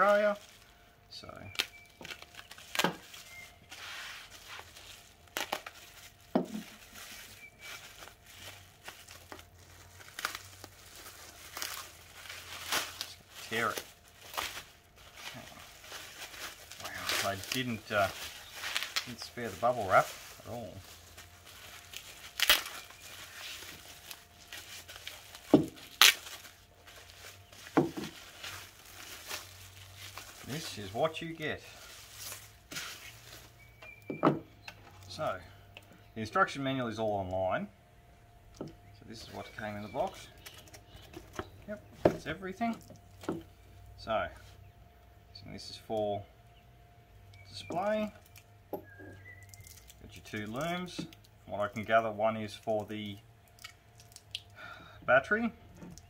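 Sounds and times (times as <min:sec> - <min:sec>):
bubble wrap crinkling: 0:00.0 - 0:33.8, 0:47.3 - 0:54.5
packing tape tearing: 0:01.5 - 0:30.9
tape being pulled off: 0:16.4 - 0:20.7, 0:21.5 - 0:26.6.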